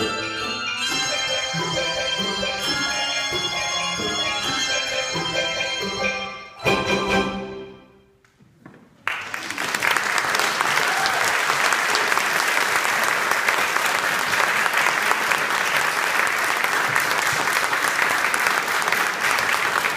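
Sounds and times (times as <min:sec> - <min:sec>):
audience applause: 0:09.0 - 0:19.9.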